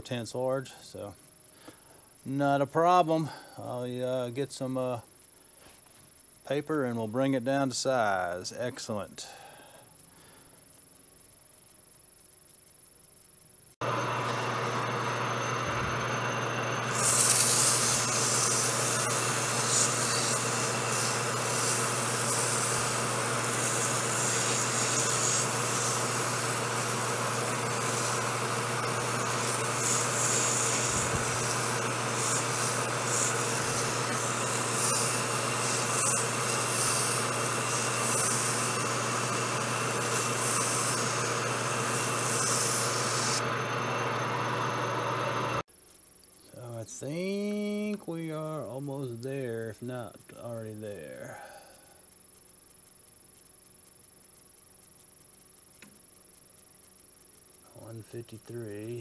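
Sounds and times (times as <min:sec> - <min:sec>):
abrasive cloth sanding hiss: 0:13.7 - 0:45.7, 0:46.4 - 0:52.8
metal lathe humming: 0:13.8 - 0:45.6.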